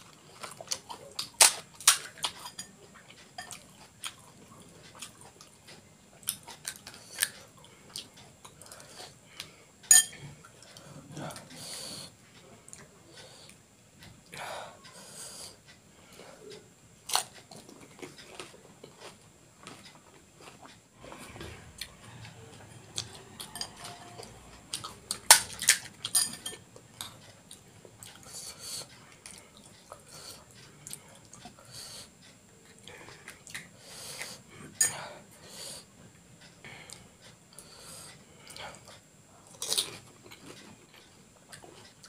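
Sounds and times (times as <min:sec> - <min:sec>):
spoon clinking against glass bowls: 0:09.9 - 0:10.2, 0:23.4 - 0:24.2, 0:26.0 - 0:26.6.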